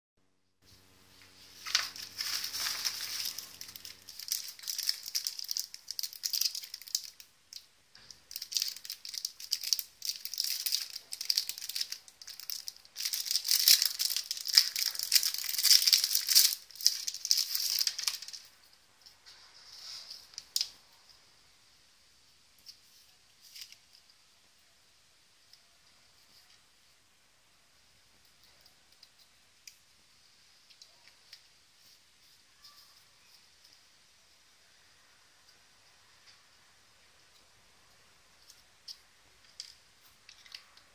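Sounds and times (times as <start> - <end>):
plastic packaging rustling: 1.3 - 20.8.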